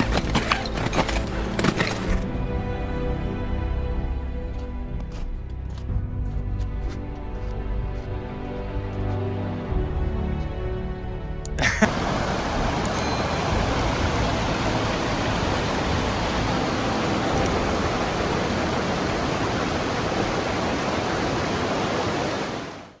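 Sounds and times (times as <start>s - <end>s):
stream rushing over rocks: 0.0s - 2.4s, 11.7s - 23.0s.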